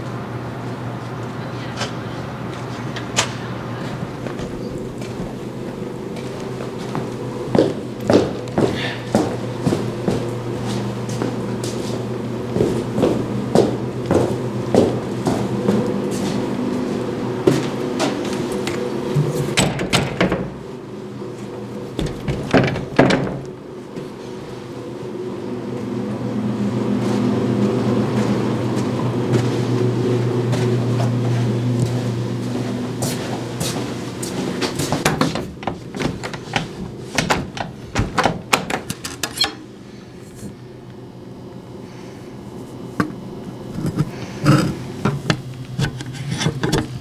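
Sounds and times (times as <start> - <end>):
steady low hum: 0.0 - 47.0
knocks and rattles on wooden door: 19.5 - 20.6, 22.0 - 23.5, 35.0 - 38.9
glass door knocking and rattling: 19.6 - 20.6, 22.0 - 23.4.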